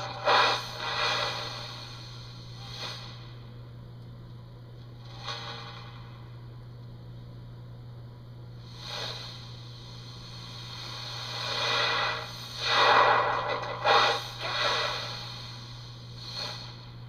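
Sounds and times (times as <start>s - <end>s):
person breathing: 0.0s - 3.4s, 8.6s - 17.0s
low electrical hum: 0.0s - 17.0s.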